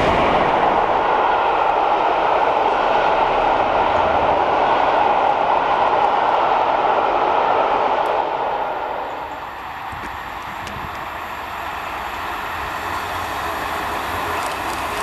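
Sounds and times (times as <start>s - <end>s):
passing train: 0.0s - 15.0s
steam locomotive rumble: 0.0s - 15.0s.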